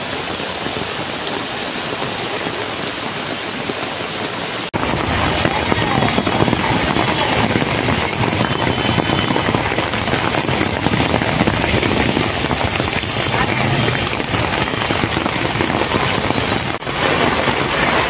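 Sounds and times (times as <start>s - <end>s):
heavy rain hissing: 0.0s - 18.0s
vehicles driving through water: 4.7s - 18.0s.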